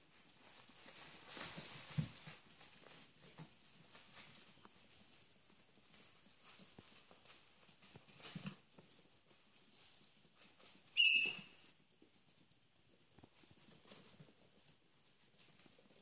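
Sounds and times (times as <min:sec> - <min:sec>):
high-pitched squeak: 0:11.0 - 0:11.6.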